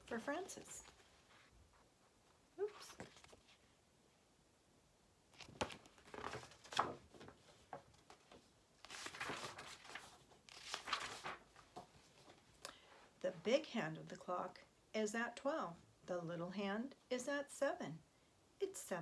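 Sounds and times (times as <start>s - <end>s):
paper pages rustling and turning: 0.0s - 3.8s, 5.4s - 12.5s.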